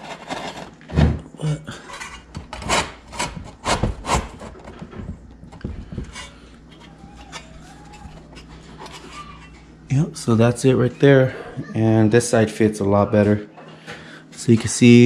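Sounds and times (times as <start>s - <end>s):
metal bracket scraping bumper: 6.0s - 9.7s.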